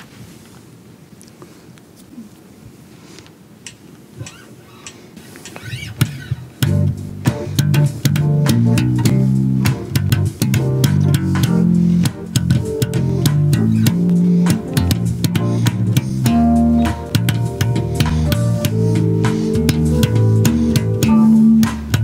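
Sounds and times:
electric bass guitar plucked notes: 6.1 - 22.0.

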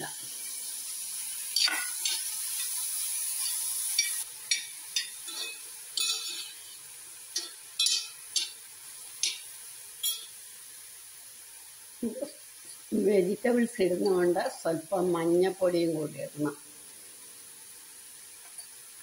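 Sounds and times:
vegetables sizzling in pan: 0.0 - 19.0
spoon scraping pan: 1.6 - 6.8.

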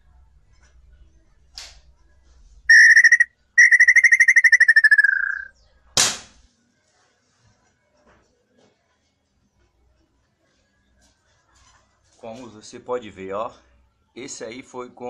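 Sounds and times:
rapidly pulsing whistle: 2.7 - 5.5
air rifle shot: 6.0 - 6.4.

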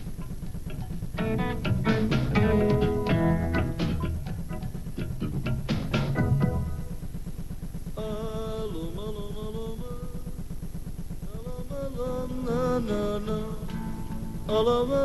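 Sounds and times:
fast rhythmic accompaniment: 0.0 - 7.9
person singing folk melody: 11.3 - 15.0.

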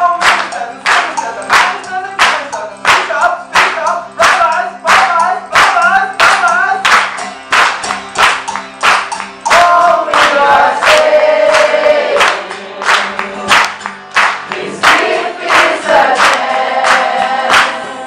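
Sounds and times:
acoustic guitar: 0.0 - 18.0
hand claps: 0.0 - 18.0
group of voices singing: 9.4 - 18.0.

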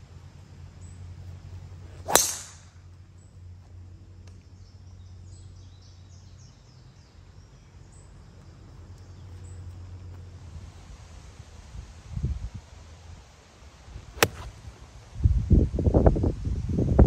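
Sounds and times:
golf club striking ball: 2.0 - 2.6, 14.1 - 14.6.

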